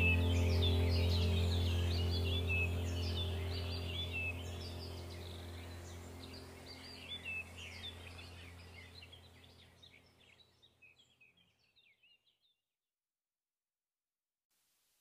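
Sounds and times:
faint low drone: 0.0s - 10.2s
small birds chirping: 0.0s - 12.6s.

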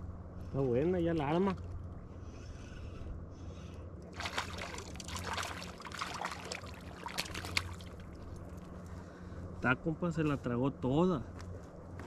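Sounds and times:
fish splashing in water: 4.1s - 8.5s.

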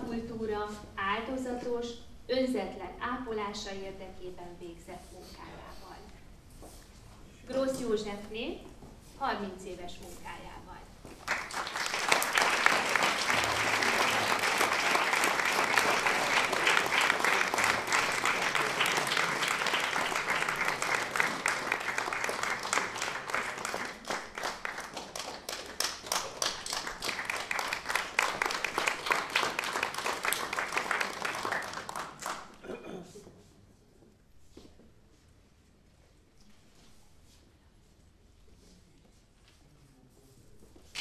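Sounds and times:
audience applauding: 11.2s - 32.6s.

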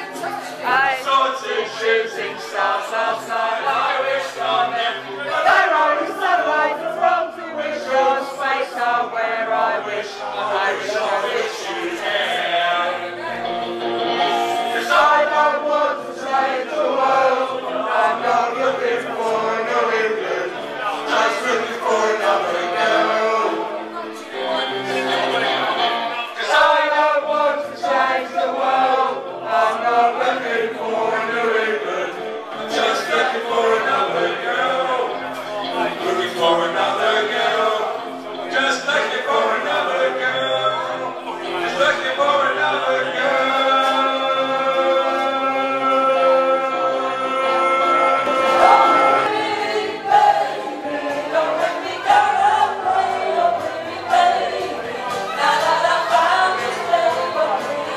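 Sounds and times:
man singing into a microphone: 14.5s - 25.4s, 29.7s - 49.4s.

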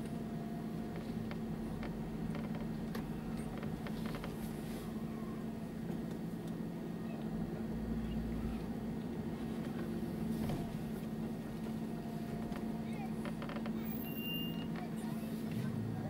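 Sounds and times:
car engine running: 0.0s - 16.0s
light clicks and creaks: 0.9s - 4.6s, 12.3s - 13.8s.

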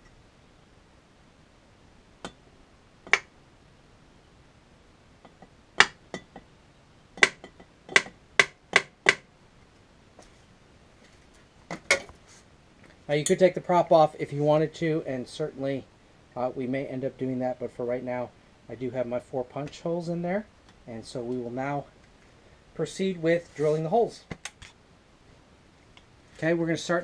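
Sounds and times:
hammer tapping nail on metal: 7.2s - 9.2s.

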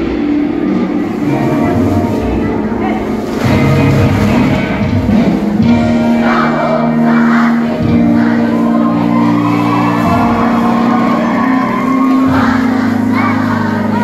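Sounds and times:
loud music: 0.0s - 14.0s
group of voices singing in unison: 5.9s - 14.0s.

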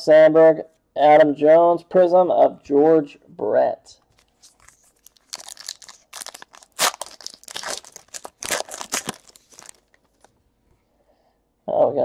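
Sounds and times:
wrapper tearing and crinkling: 4.1s - 10.3s.

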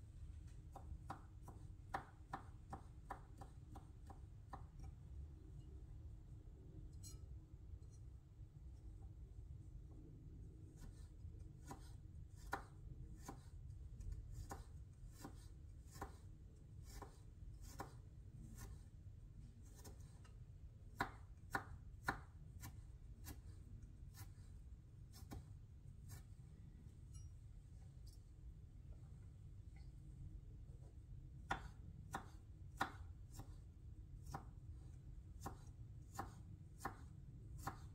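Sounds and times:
knife chopping on wooden board: 0.7s - 4.9s, 10.8s - 13.5s, 14.3s - 18.0s, 18.6s - 18.8s, 19.7s - 20.2s, 20.9s - 23.5s, 25.1s - 25.5s, 31.4s - 33.6s, 34.2s - 34.6s, 35.4s - 37.9s.

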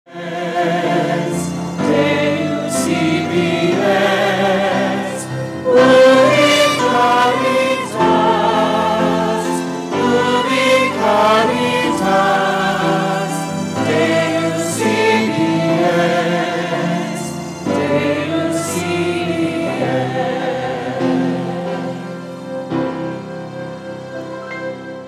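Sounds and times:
choir singing a hymn: 0.1s - 25.0s.

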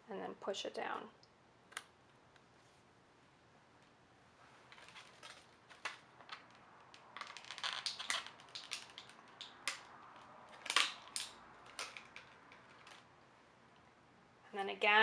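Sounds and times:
small clicks and crinkly crackles: 4.7s - 13.1s.

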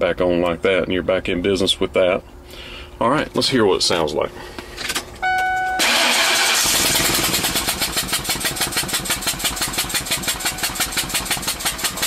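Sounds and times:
engine cranking and idling: 4.9s - 12.0s
short electronic chime: 5.2s - 5.8s
fast even chuffing: 5.8s - 12.0s.

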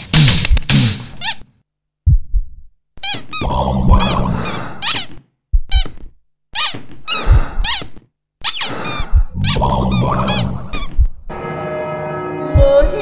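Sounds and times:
cartoon squeaks: 3.0s - 3.4s, 4.5s - 10.9s.

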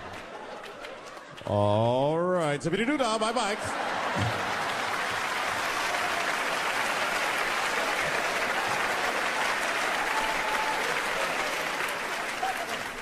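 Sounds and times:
audience applauding: 0.0s - 1.8s, 3.4s - 13.0s
audience laughing: 3.3s - 6.2s.

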